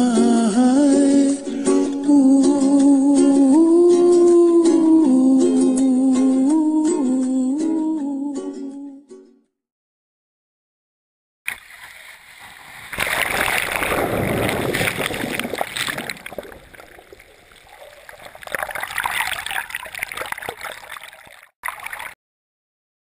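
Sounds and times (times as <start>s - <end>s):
shallow surf washing and splashing: 11.5s - 22.2s.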